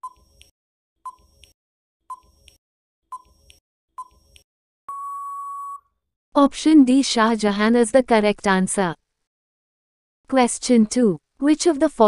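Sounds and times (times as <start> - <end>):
long steady beep: 4.9 - 5.9
short beeps: 4.9 - 5.9.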